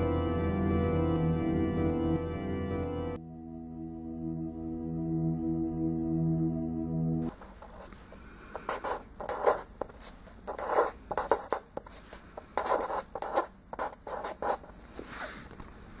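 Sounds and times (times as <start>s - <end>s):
pen scratching on paper: 7.2s - 15.5s.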